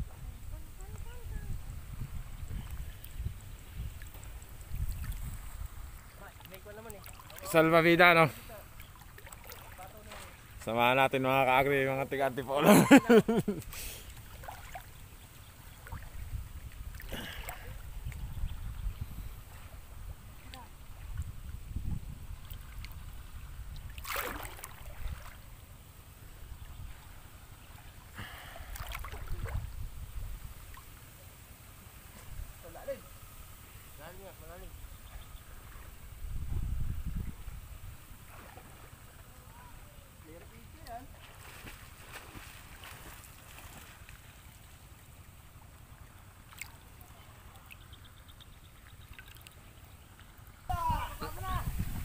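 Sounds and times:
low steady rumble: 0.0s - 52.0s
river water splashing: 0.0s - 52.0s
splash-like click: 24.0s - 24.9s.

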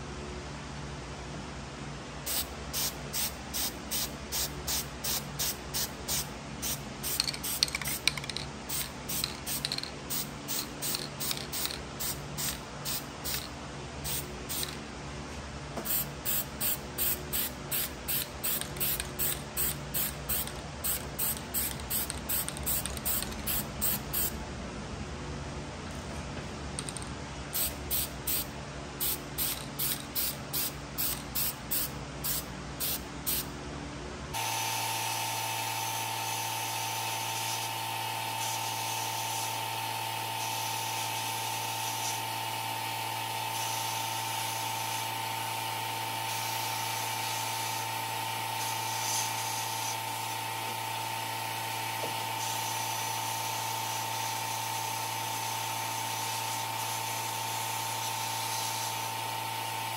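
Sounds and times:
short hissing bursts: 2.2s - 14.8s, 15.8s - 24.4s, 26.9s - 33.5s, 43.5s - 44.6s, 48.6s - 50.0s.

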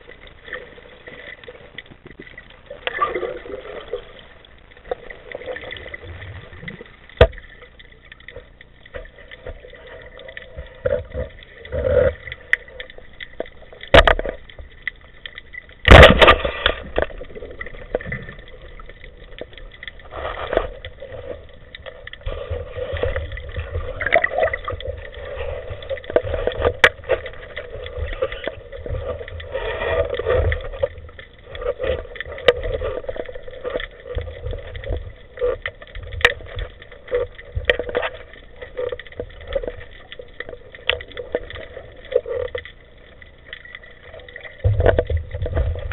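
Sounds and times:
muffled water swishing: 0.0s - 45.9s
knocks and scrapes: 44.4s - 45.9s.

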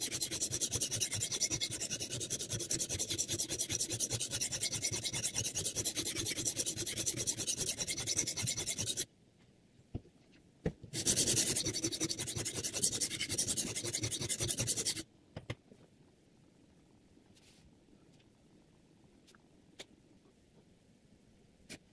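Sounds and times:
sharpening stone scraping knife: 0.0s - 9.0s, 11.0s - 15.0s.

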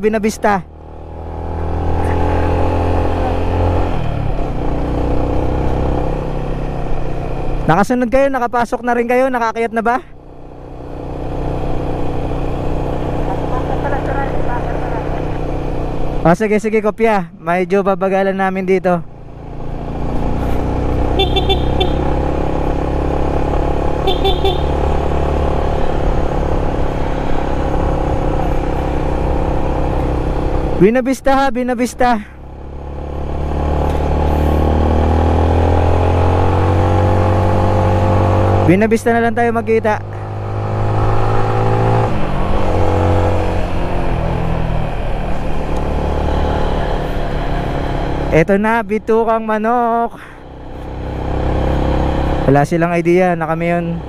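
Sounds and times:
motorcycle engine cruising: 0.0s - 54.0s
horn short toots: 21.1s - 22.2s, 24.0s - 24.8s.

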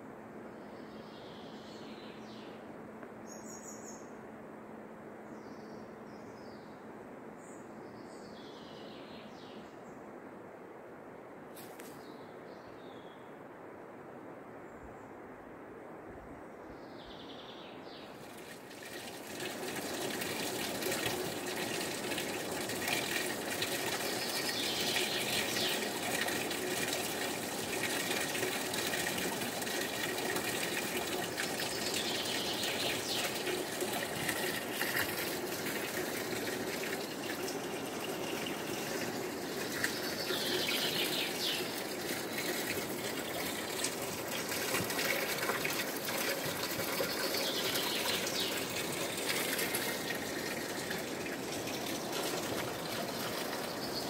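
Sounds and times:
water pouring into basin: 18.2s - 54.0s.

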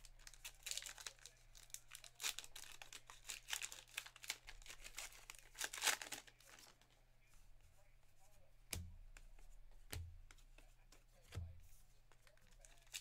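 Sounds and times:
wrapper tearing and crinkling: 0.0s - 6.8s.

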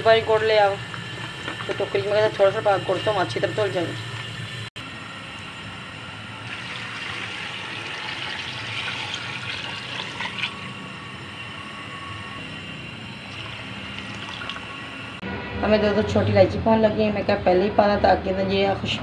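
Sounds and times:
water pouring into steel pan: 6.5s - 10.7s, 13.2s - 14.7s.

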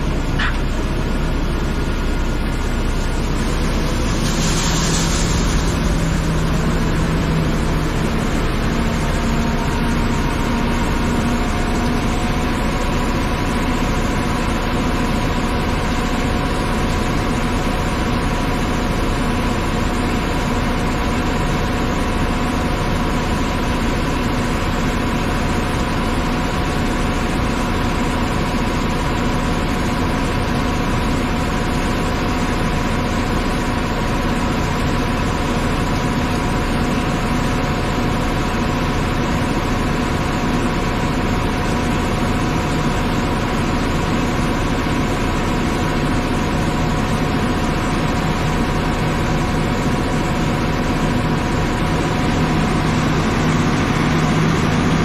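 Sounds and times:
tractor engine drone: 0.0s - 55.0s
grain pouring into trailer: 2.0s - 9.4s.

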